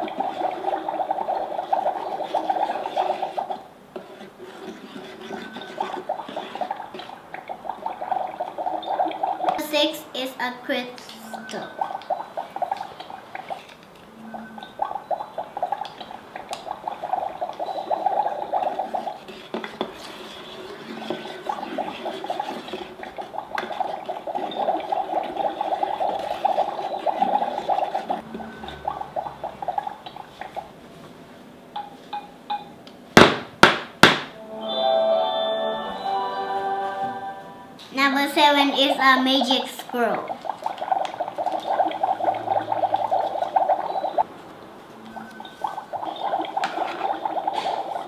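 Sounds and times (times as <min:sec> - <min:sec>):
wand stirring water: 0:00.0 - 0:09.8, 0:11.0 - 0:30.8, 0:38.0 - 0:48.0
sharp knocks: 0:33.2 - 0:34.4.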